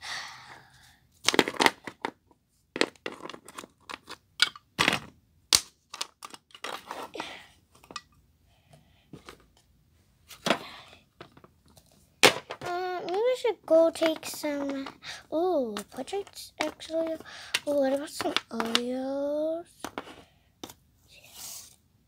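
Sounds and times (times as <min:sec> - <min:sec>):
plastic toy pieces clicking: 0:15.8 - 0:19.0.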